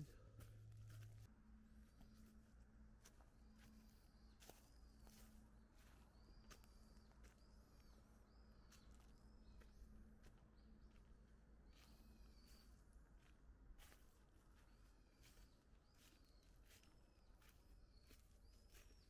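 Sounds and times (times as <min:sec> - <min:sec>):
bird chirping: 0:11.7 - 0:12.8.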